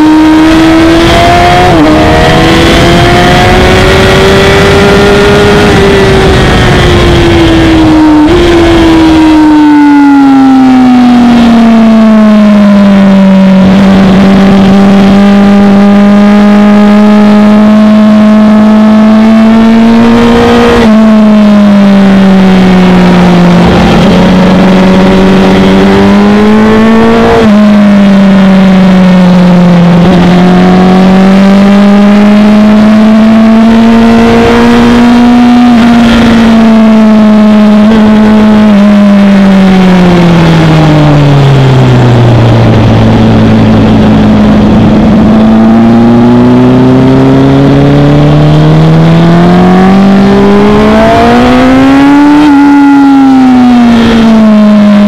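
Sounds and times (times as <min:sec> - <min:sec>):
wind rush: 0:00.0 - 0:10.4, 0:40.2 - 0:46.4
motorcycle engine revving: 0:00.0 - 0:55.0.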